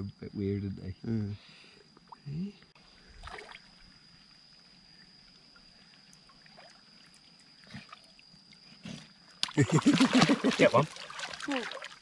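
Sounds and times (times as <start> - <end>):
high-pitched insect trill: 0.0 - 12.0
water sloshing and trickling: 3.0 - 4.2, 5.4 - 12.0
small splashes: 3.2 - 3.7, 9.4 - 12.0.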